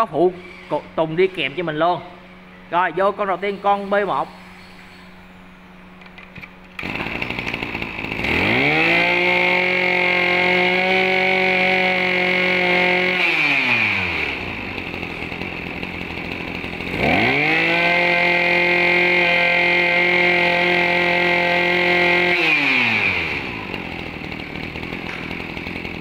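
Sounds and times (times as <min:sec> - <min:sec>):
brush cutter engine revving: 0:00.0 - 0:02.2, 0:06.1 - 0:26.0.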